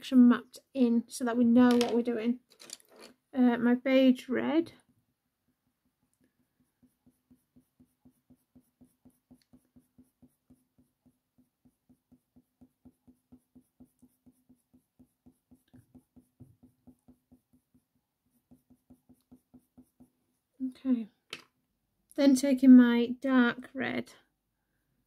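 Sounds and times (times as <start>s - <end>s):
coloured pencil scratching on paper: 4.6s - 20.6s.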